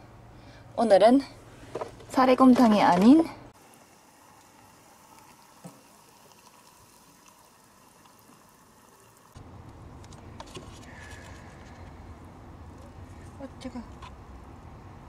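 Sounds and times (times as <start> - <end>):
low steady background noise: 0.0 - 15.0
water pouring into paper cup: 3.6 - 9.4.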